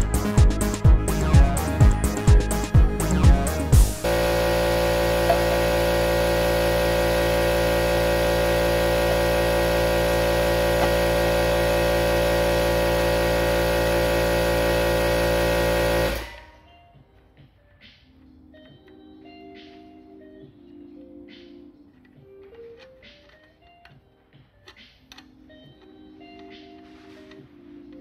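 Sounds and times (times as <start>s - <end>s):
loud machine running: 1.4s - 16.6s
faint music: 16.2s - 28.0s.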